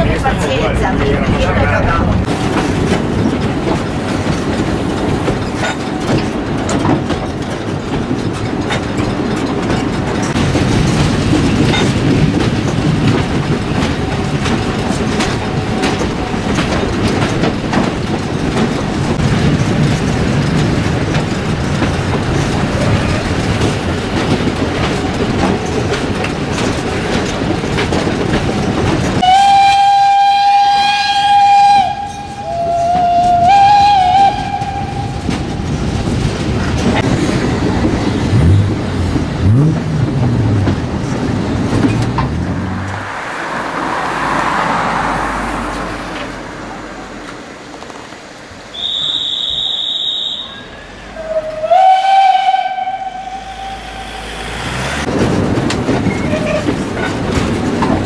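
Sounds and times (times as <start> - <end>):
train wheels clattering on rails: 0.0 - 58.0
steam whistle: 29.2 - 35.2, 48.7 - 54.8.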